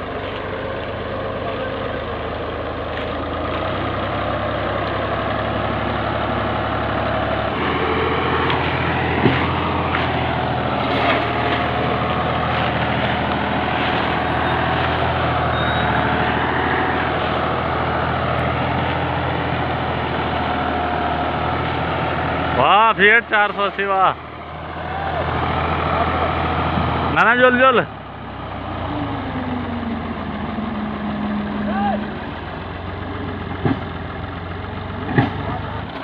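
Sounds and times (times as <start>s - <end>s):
tractor diesel engine running: 0.0s - 36.0s.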